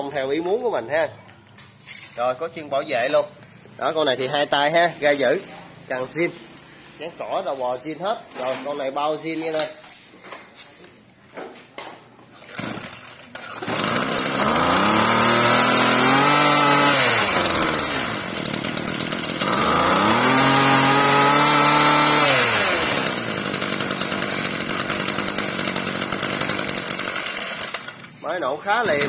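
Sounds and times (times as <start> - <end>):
brush cutter engine revving and idling: 12.6 - 29.0.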